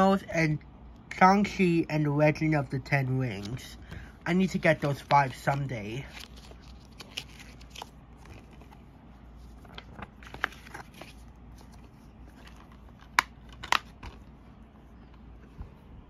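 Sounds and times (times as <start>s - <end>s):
paper rustling: 3.3s - 16.0s.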